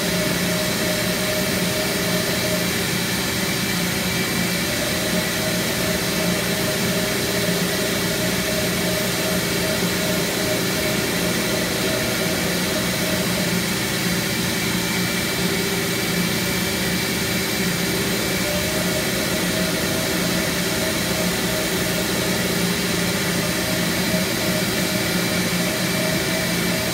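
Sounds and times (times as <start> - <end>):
carpet extractor vacuum motors: 0.0 - 26.9.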